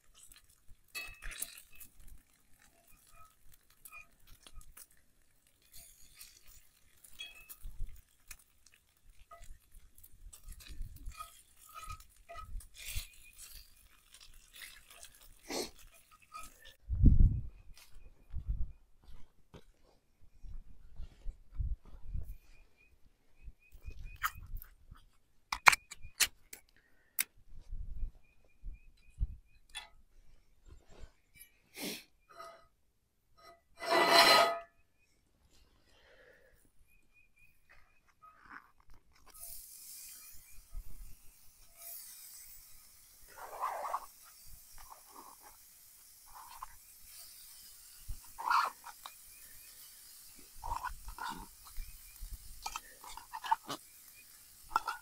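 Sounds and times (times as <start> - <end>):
meat sizzling in a skillet: 0.0 - 16.7, 39.4 - 55.0.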